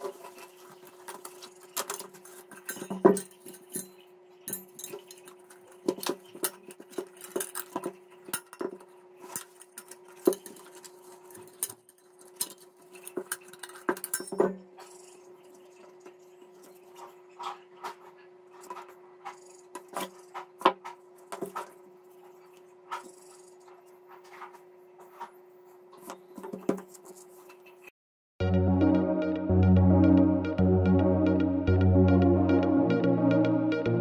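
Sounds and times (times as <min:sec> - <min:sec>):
metal wire clinking on metal plate: 0:01.3 - 0:14.6.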